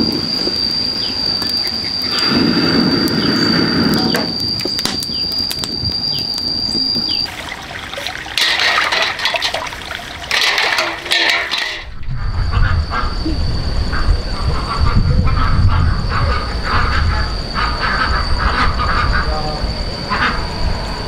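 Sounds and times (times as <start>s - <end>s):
high-pitched whine: 0.0s - 21.0s
water splashing: 7.3s - 11.9s.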